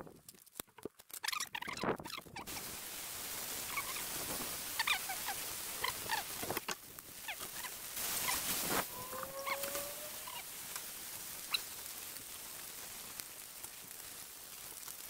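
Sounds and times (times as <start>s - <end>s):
meat sizzling and crackling: 1.0s - 15.0s.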